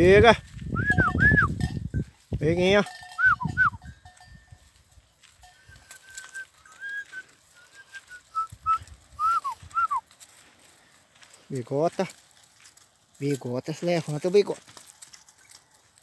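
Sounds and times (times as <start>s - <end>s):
footsteps on dry ground: 0.0s - 16.0s
person whistling: 0.7s - 1.6s, 3.2s - 3.8s, 5.6s - 10.0s.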